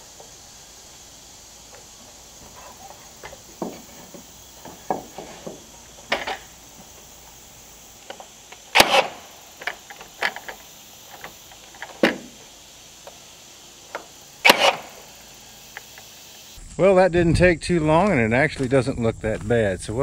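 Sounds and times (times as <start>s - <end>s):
nail gun shots: 8.7s - 9.4s, 14.4s - 15.0s.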